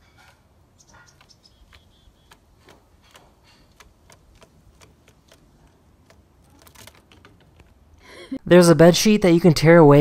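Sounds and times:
squirrel clicking: 0:00.0 - 0:08.1
squirrel high chirps: 0:00.8 - 0:02.4.

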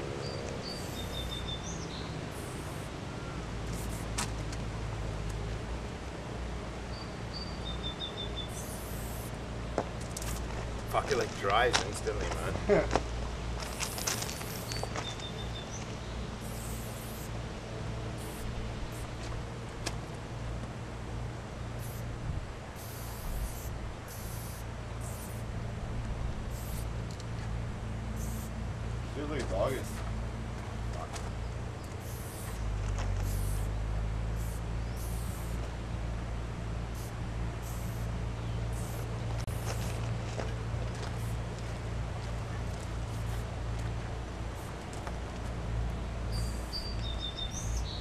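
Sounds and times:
outdoor background noise: 0:00.0 - 0:48.0
steady low rumble: 0:00.0 - 0:48.0
faint high bird chirps: 0:00.2 - 0:03.4, 0:06.9 - 0:09.3, 0:14.4 - 0:17.0, 0:46.3 - 0:48.0
aerosol spray can hiss: 0:00.7 - 0:01.4, 0:02.3 - 0:02.9, 0:03.7 - 0:04.2, 0:08.5 - 0:09.4, 0:13.7 - 0:14.8, 0:16.4 - 0:17.3, 0:18.2 - 0:18.5, 0:22.8 - 0:25.4, 0:26.5 - 0:26.9, 0:28.2 - 0:28.5, 0:32.0 - 0:32.6, 0:33.2 - 0:33.7, 0:34.4 - 0:35.6, 0:37.0 - 0:38.1, 0:38.8 - 0:39.8, 0:46.3 - 0:46.8.

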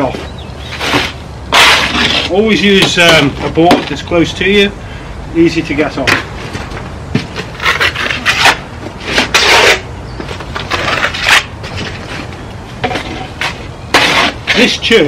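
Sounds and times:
trowel scraping render: 0:00.7 - 0:03.9, 0:07.4 - 0:15.0.

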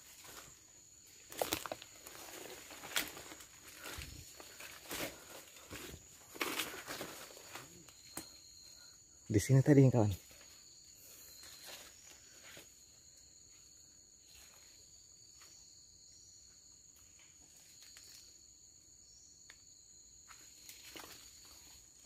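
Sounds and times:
forest insects droning: 0:00.0 - 0:22.0.

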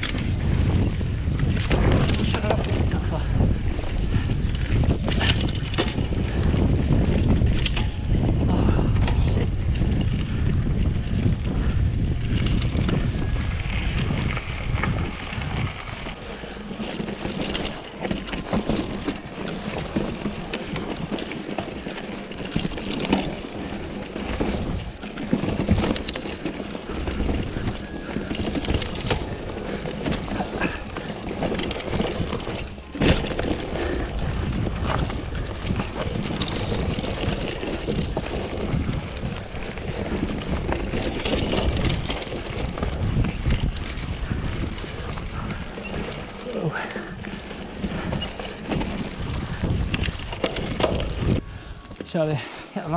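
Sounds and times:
bike rattling and clicking: 0:00.0 - 0:52.9
tyres crunching on gravel: 0:12.6 - 0:52.9.

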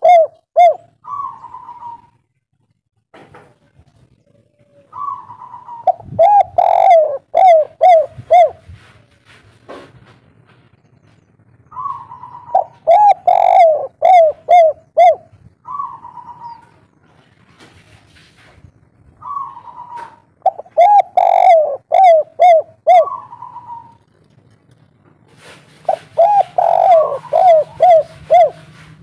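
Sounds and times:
dove cooing: 0:00.0 - 0:02.2, 0:04.2 - 0:08.9, 0:11.7 - 0:16.9, 0:19.2 - 0:24.2, 0:25.4 - 0:29.0.

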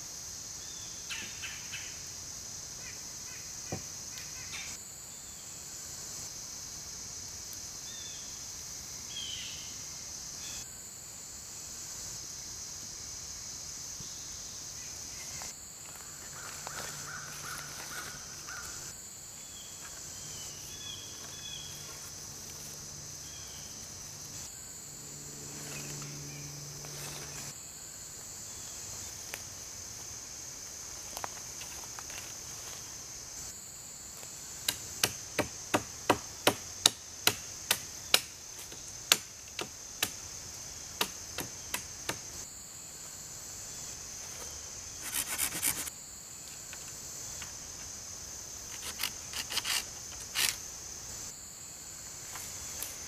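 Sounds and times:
insects droning: 0:00.0 - 0:53.0.

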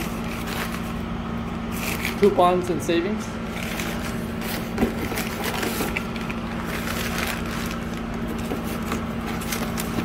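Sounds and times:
newspaper rustling and crinkling: 0:00.0 - 0:00.9, 0:03.5 - 0:10.0
steady low hum: 0:00.0 - 0:10.0.

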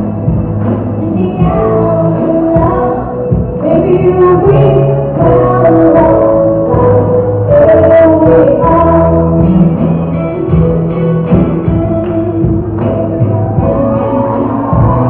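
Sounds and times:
live band playing slow pop song: 0:00.0 - 0:15.0
person singing: 0:00.9 - 0:09.8, 0:13.5 - 0:15.0.

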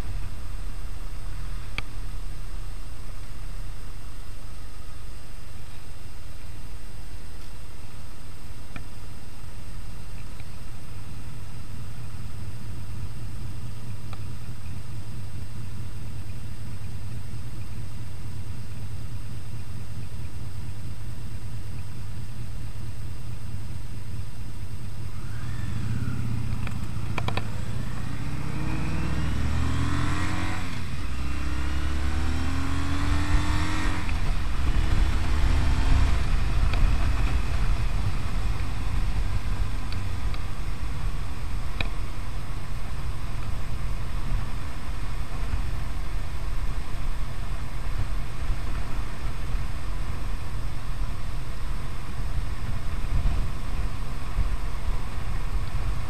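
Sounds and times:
wind and road noise: 0:00.0 - 0:56.0
motorcycle engine revving: 0:24.8 - 0:42.1.

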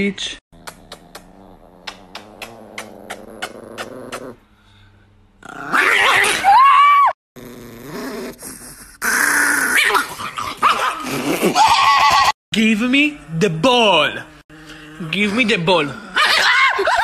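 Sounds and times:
small dog growling and snarling: 0:00.5 - 0:04.4, 0:05.4 - 0:06.5, 0:07.4 - 0:12.4, 0:13.2 - 0:16.6.

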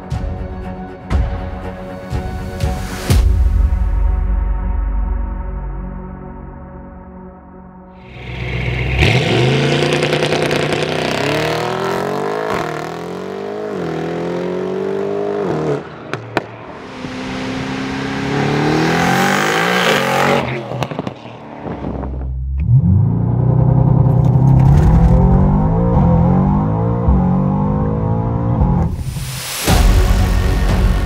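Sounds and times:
car engine revving: 0:08.0 - 0:31.0.

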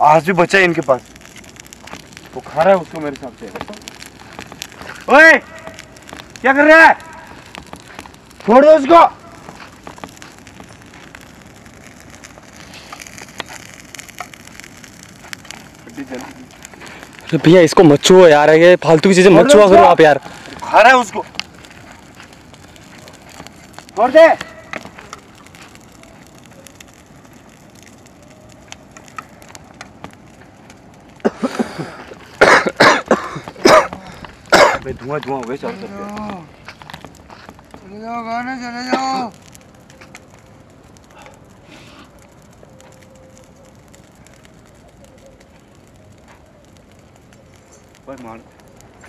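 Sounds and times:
bonfire crackling: 0:00.0 - 0:49.0
fire pops: 0:00.0 - 0:49.0
person coughing hard: 0:32.4 - 0:34.9.

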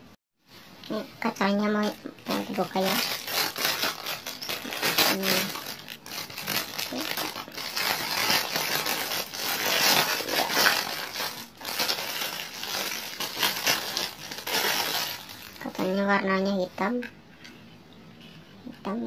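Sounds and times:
plastic wrapping crinkling: 0:00.9 - 0:16.1.

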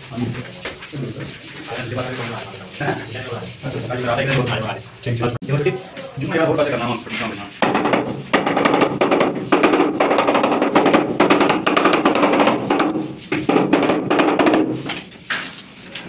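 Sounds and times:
rubber mallet tapping on tile: 0:07.6 - 0:14.8.

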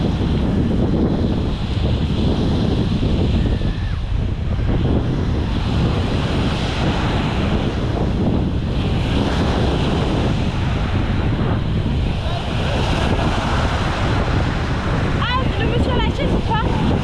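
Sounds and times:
surf breaking on shore: 0:00.0 - 0:17.0
wind on microphone: 0:00.0 - 0:17.0.

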